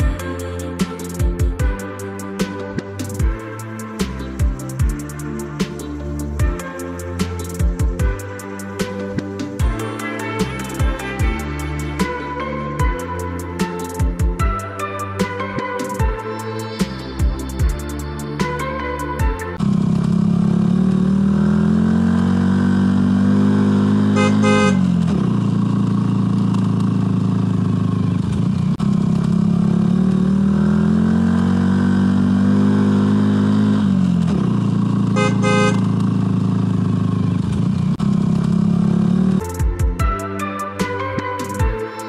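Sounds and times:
car engine revving: 0:19.6 - 0:39.6
honk-like burst: 0:24.2 - 0:24.8, 0:35.2 - 0:35.8.

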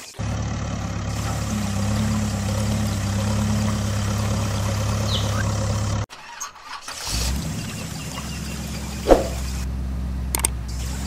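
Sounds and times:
vehicle engine idling: 0:00.0 - 0:06.1, 0:07.1 - 0:11.0
deeper engine starting and idling: 0:00.0 - 0:11.0
sharp knock: 0:09.1 - 0:09.4.

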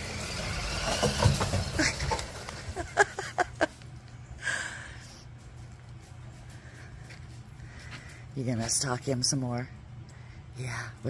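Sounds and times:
toy truck electric motor: 0:00.0 - 0:02.9.

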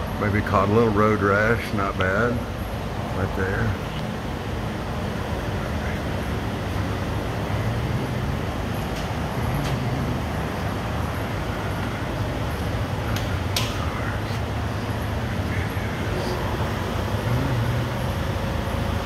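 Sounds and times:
low rumble and hiss: 0:00.0 - 0:19.0.

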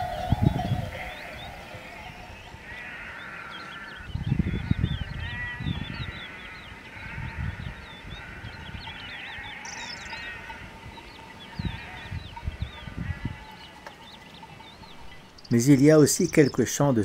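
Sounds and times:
small birds chirping: 0:00.0 - 0:17.0
sheep bleating: 0:11.5 - 0:12.2.

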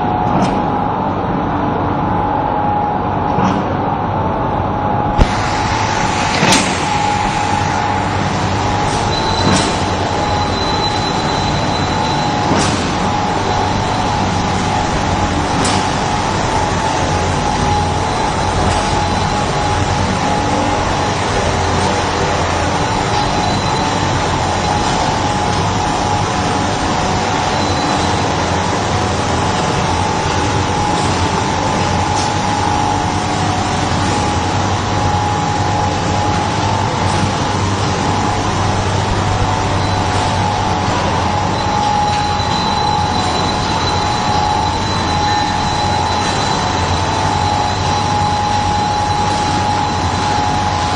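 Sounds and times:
factory machinery running: 0:00.0 - 0:50.9
sharp machine click: 0:08.8 - 0:13.1.

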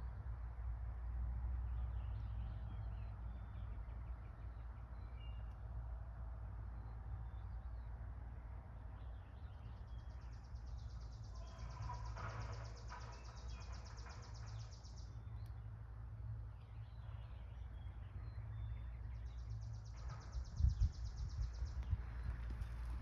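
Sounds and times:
low wind rumble: 0:05.9 - 0:23.0
faint low bird calls: 0:09.6 - 0:15.4.

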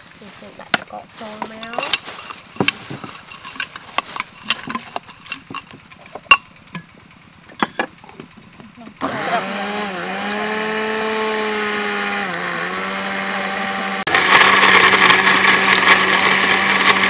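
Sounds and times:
blender blending fruit: 0:09.0 - 0:17.0.

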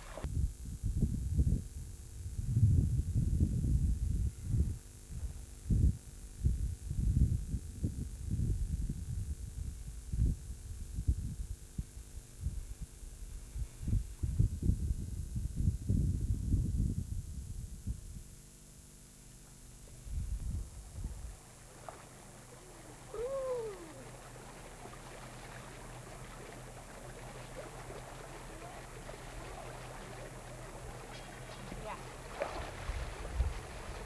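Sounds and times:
wind buffeting microphone: 0:00.0 - 0:01.7, 0:19.9 - 0:34.0
faint steady hum: 0:00.0 - 0:34.0.

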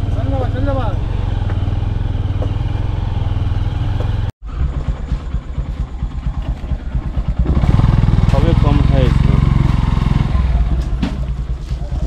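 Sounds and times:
low chugging rumble: 0:00.0 - 0:12.0
small motorcycle engine running: 0:00.0 - 0:12.0.

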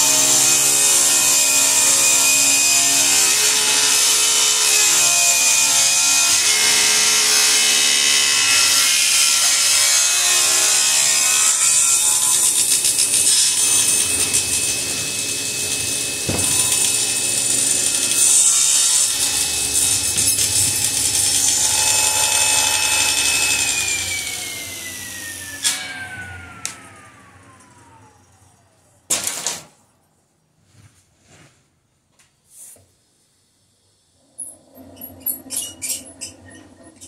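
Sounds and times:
table saw cutting board: 0:00.0 - 0:28.2.

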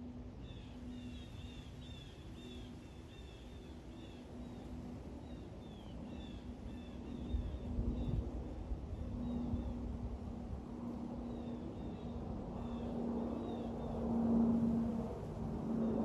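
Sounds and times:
jet airliner rumble: 0:04.2 - 0:16.0.

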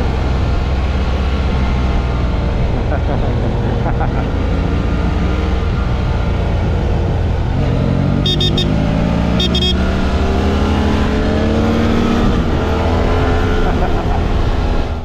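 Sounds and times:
motorcycle engine running: 0:00.0 - 0:11.3
wind rumble on microphone: 0:05.0 - 0:08.0, 0:11.0 - 0:15.0.

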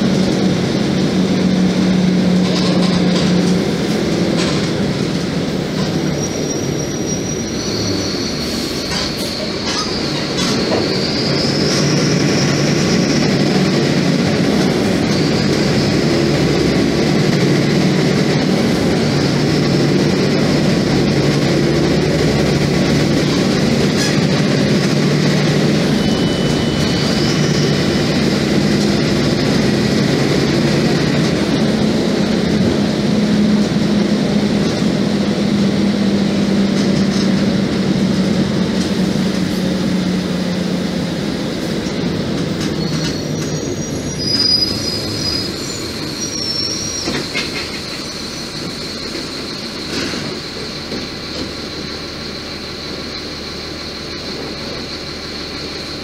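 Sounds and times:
bus diesel engine drone: 0:00.0 - 0:56.0
road noise: 0:00.0 - 0:56.0
high whines: 0:06.2 - 0:47.2.

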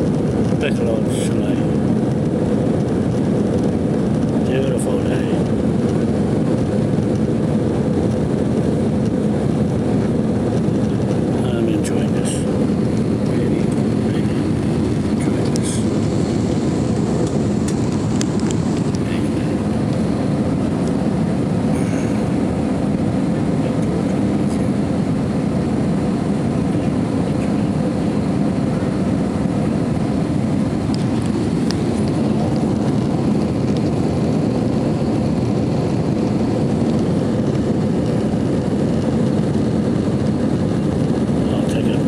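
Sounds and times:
jet engines roaring: 0:00.0 - 0:42.0
rushing air: 0:28.1 - 0:41.4.

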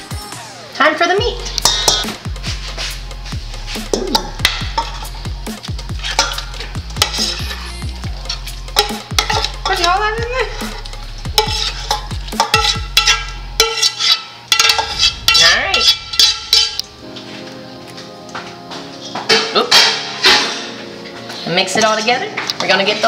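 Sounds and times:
metal spatula scraping skillet: 0:01.4 - 0:17.4, 0:19.3 - 0:20.8.

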